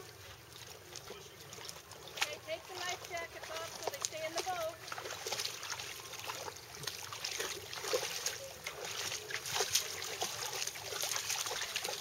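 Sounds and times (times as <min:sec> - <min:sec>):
lake water lapping and splashing: 0:00.0 - 0:12.0.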